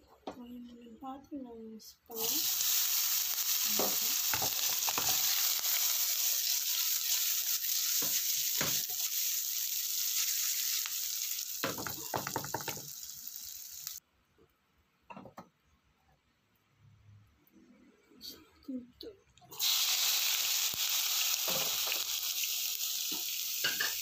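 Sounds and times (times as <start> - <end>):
meat sizzling in hot oil: 2.1 - 14.0, 19.5 - 24.0.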